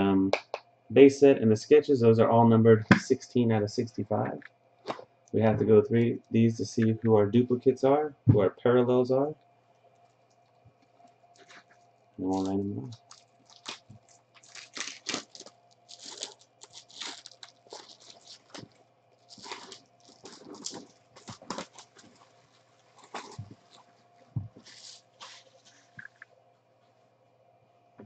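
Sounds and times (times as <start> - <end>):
plastic wrapping crinkling: 9.9 - 26.3.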